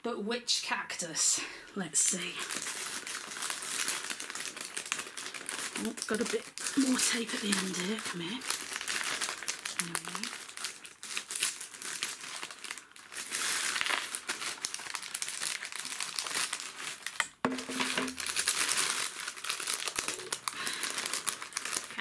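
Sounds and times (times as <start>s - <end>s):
paper wrapping crinkling: 2.3s - 22.0s.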